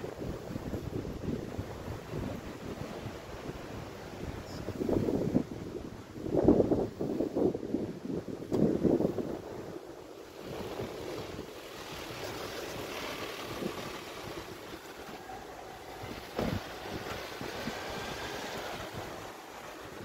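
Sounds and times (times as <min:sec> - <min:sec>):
wind rushing on microphone: 0:00.0 - 0:20.0
brief thump: 0:16.3 - 0:17.2.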